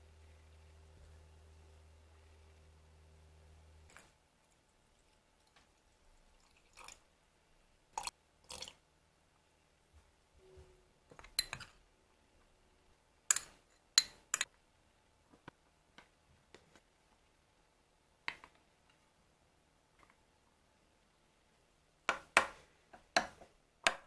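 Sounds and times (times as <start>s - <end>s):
water trickling into glass jar: 3.9s - 7.1s, 7.9s - 8.8s
metal spoon clinking on glass: 11.2s - 11.7s.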